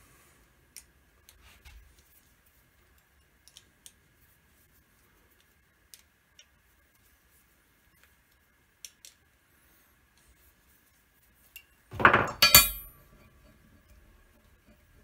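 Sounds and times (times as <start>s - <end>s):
metal parts clattering on steel plate: 11.9s - 13.0s.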